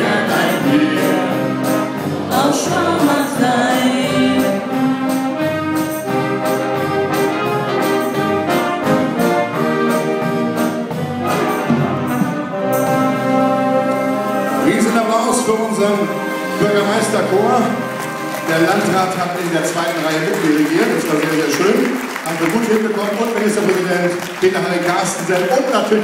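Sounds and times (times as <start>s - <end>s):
person singing: 0.0s - 5.0s
brass band playing: 0.0s - 26.0s.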